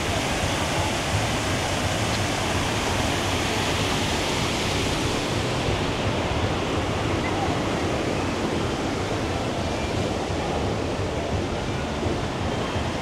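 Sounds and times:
rushing water: 0.0 - 13.0.

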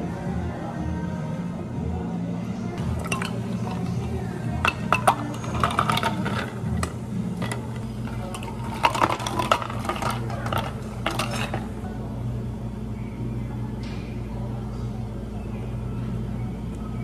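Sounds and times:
ice cubes clinking into glasses: 2.8 - 11.8.

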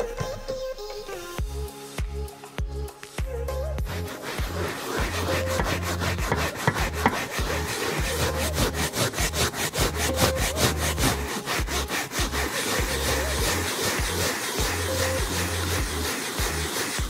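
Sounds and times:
music with bass beat: 0.0 - 17.0
brush scrubbing fabric cushion: 3.8 - 17.0.

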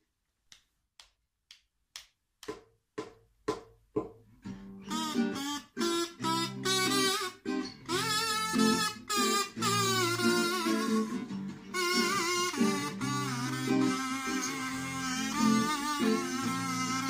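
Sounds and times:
acoustic guitar: 4.0 - 17.0
higher melody line: 4.8 - 17.0.

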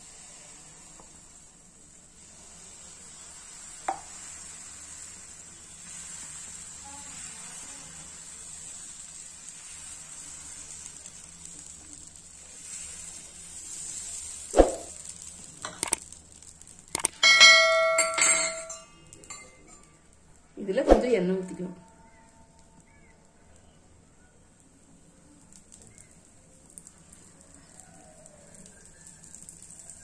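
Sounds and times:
batter sizzling on hot pan: 0.0 - 30.0
metal ladle clinks: 17.1 - 19.9
loud ringing metal clang: 17.2 - 18.9.

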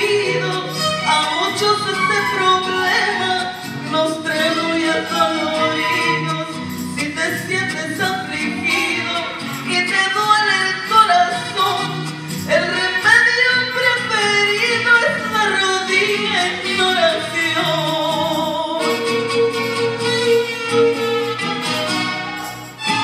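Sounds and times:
woman singing praise song: 0.0 - 11.9, 12.5 - 19.0
instrumental accompaniment: 15.9 - 23.0.

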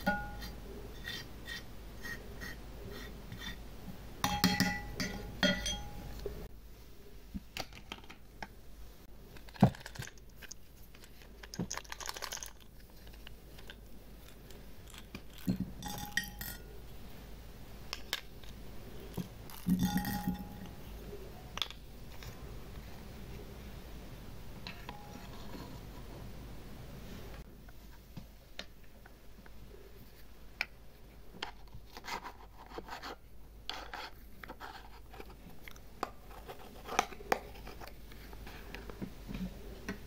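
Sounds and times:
plastic pieces clinking on glass dish: 11.4 - 12.6, 19.5 - 20.8.

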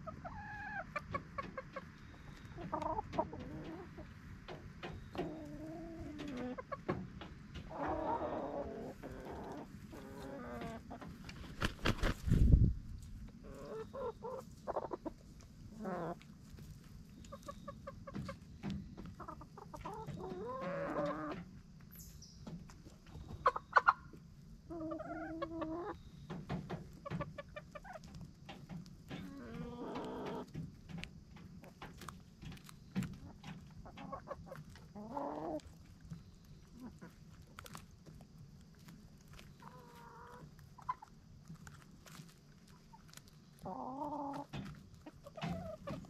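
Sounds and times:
beaks pecking at ground: 0.0 - 12.3, 13.0 - 46.0
chickens clucking: 0.0 - 46.0.

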